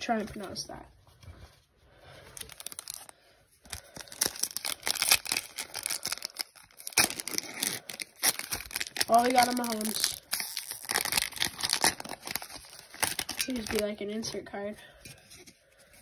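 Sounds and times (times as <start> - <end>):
foil wrapper tearing and crinkling: 2.3 - 14.2.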